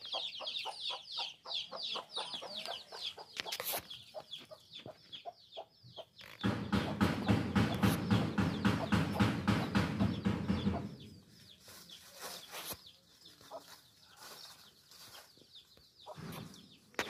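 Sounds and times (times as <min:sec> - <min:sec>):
hen clucking rapidly: 0:00.0 - 0:11.2
chicks peeping softly: 0:00.0 - 0:17.0.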